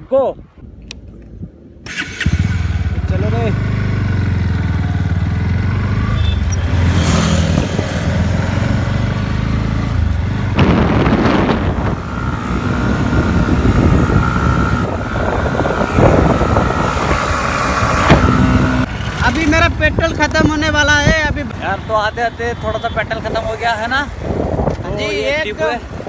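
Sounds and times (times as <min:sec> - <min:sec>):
motorcycle engine running: 0:01.9 - 0:21.0
wind noise on microphone: 0:06.6 - 0:21.5, 0:23.1 - 0:26.0.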